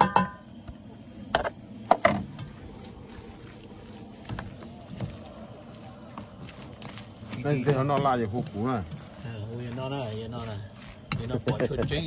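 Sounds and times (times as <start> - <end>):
scraping and mixing meat: 2.6 - 12.0.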